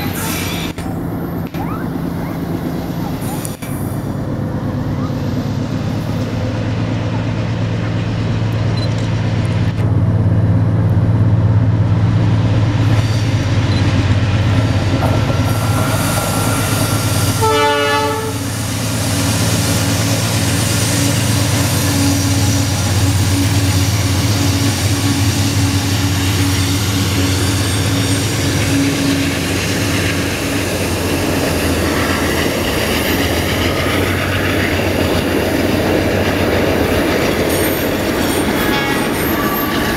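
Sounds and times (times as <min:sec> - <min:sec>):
locomotive engine drone: 0:00.0 - 0:39.9
train wagons clattering on rails: 0:12.8 - 0:39.9.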